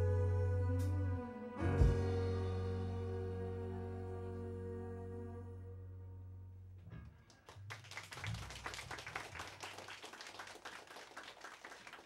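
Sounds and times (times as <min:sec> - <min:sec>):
band playing low notes: 0:00.0 - 0:07.1
audience clapping: 0:07.3 - 0:12.0.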